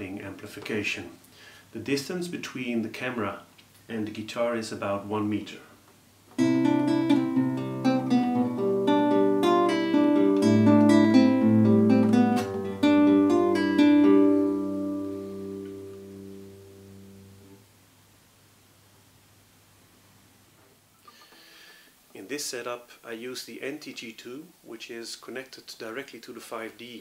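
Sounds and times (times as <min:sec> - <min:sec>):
classical guitar fingerstyle: 0:06.4 - 0:17.6.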